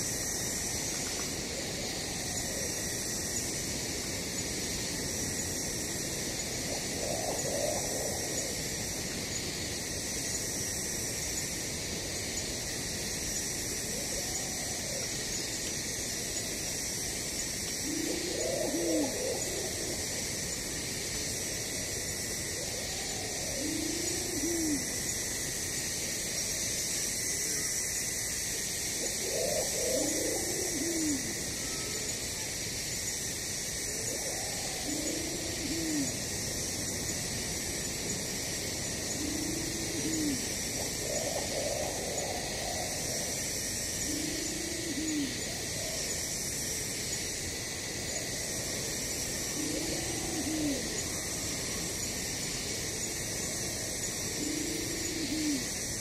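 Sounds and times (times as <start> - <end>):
insects chorus: 0.0 - 56.0
low cooing bird call: 0.7 - 3.0, 6.2 - 8.8, 13.8 - 15.4, 16.2 - 20.3, 22.4 - 25.0, 28.9 - 32.2, 33.9 - 36.3, 38.9 - 46.8, 48.2 - 56.0.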